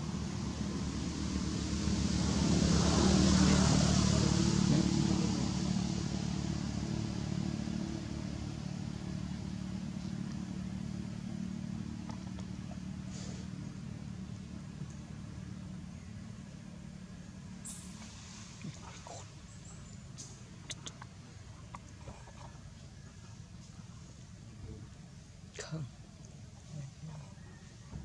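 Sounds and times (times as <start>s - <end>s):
motor engine running: 0.0s - 18.1s.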